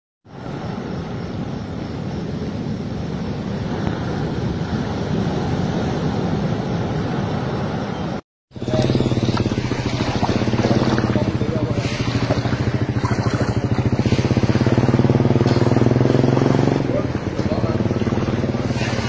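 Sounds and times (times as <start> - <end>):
storm wind: 0.3 - 8.9
surf: 0.3 - 19.0
engine humming with pulsing beat: 8.5 - 19.0.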